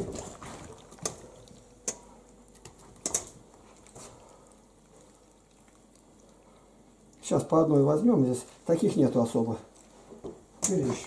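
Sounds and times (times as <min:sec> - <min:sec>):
hands squeezing wet fish: 0:00.0 - 0:07.4.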